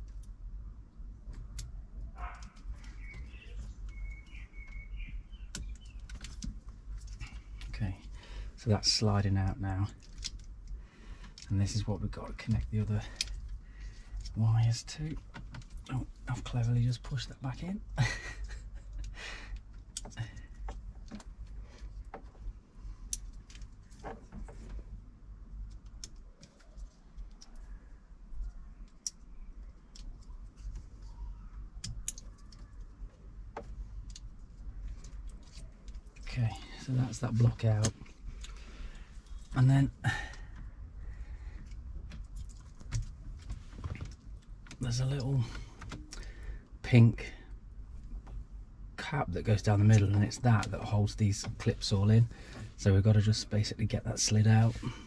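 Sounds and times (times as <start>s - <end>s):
songbird singing: 2.2s - 6.4s.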